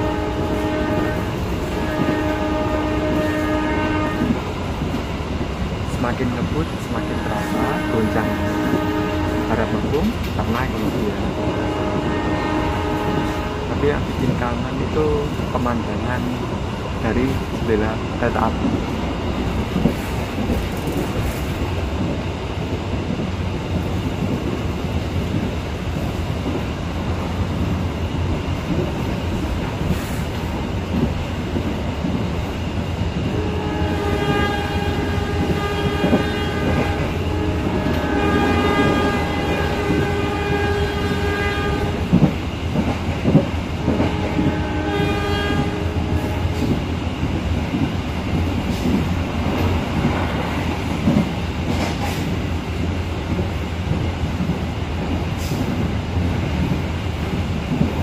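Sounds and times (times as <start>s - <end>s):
locomotive horn blasts: 0.0s - 4.4s, 6.9s - 9.9s, 11.2s - 13.8s, 33.4s - 42.1s, 43.8s - 46.8s
train rumble and wheel clatter: 0.0s - 58.0s.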